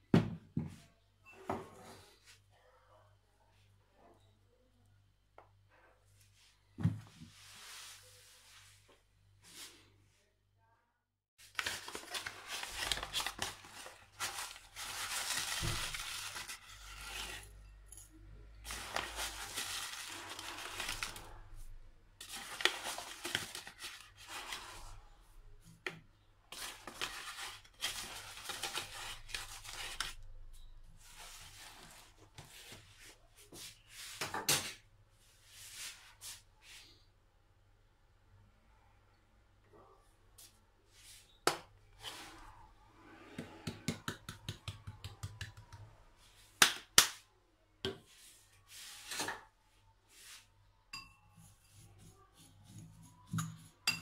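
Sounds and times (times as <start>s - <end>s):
plastic bag rustling and crinkling: 11.4s - 17.6s, 18.6s - 25.0s, 26.6s - 30.2s.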